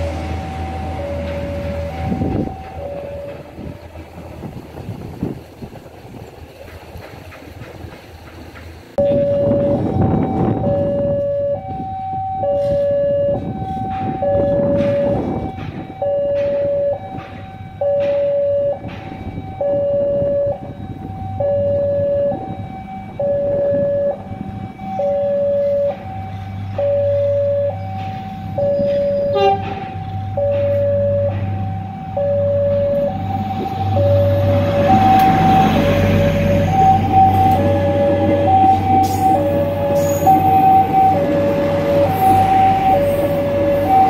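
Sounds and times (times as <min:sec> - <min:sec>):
two-tone crossing alarm: 0:00.0 - 0:04.2, 0:09.0 - 0:44.0
train engine hum: 0:00.0 - 0:44.0
train wheel and rail rumble: 0:00.0 - 0:44.0.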